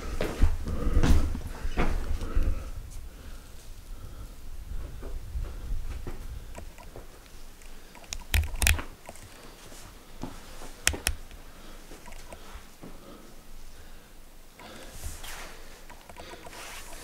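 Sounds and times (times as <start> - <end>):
camera handling clicks and knocks: 8.0 - 9.3.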